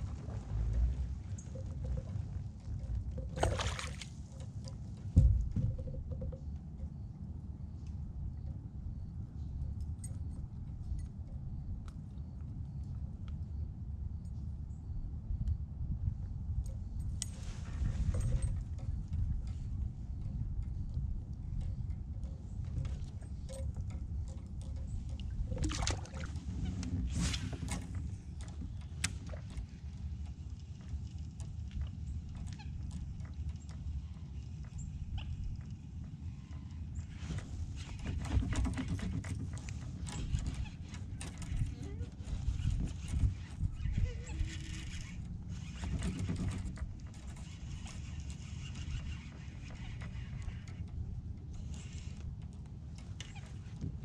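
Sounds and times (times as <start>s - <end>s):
wind rumbling on microphone: 0.0s - 54.0s
knocks and clicks of gear: 0.1s - 6.9s, 37.2s - 54.0s.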